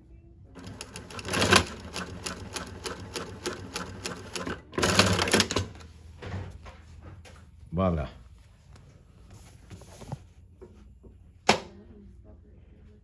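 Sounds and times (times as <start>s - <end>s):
sewing machine clattering: 0.6s - 5.8s.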